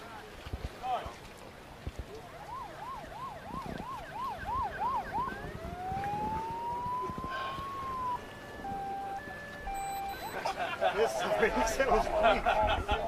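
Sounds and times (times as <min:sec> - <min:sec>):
emergency vehicle siren: 0:02.2 - 0:10.7.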